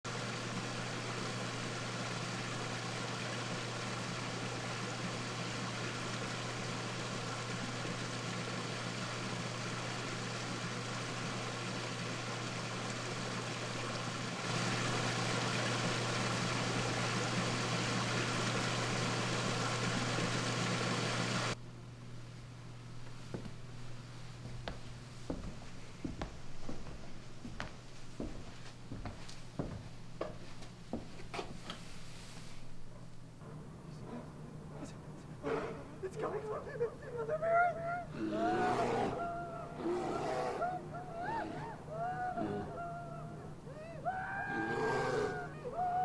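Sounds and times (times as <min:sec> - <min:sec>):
hiss: 0:00.1 - 0:21.6, 0:31.6 - 0:32.8.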